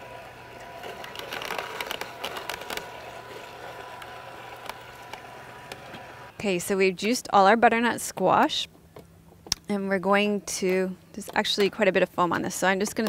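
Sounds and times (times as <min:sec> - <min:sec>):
juicer motor hum: 0:00.0 - 0:06.4
produce cracking and crunching: 0:00.7 - 0:05.3.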